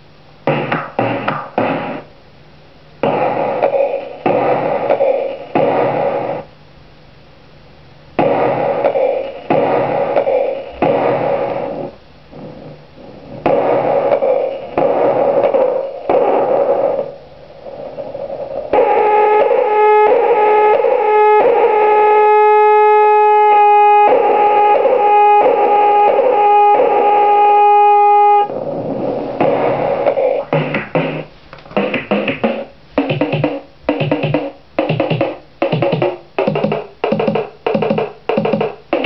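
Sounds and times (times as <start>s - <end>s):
buzzy square-wave drone: 3.0s - 6.5s, 8.2s - 39.0s
harsh noise bursts from toy synth: 18.7s - 28.6s.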